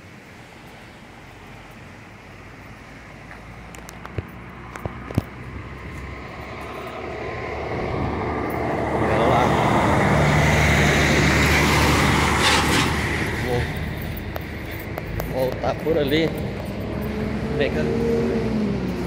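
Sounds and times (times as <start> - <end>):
lorry passing close: 4.3 - 19.0.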